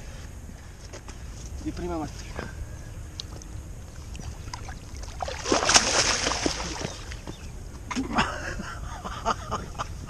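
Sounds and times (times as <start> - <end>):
water splashing in shallows: 3.9 - 7.3.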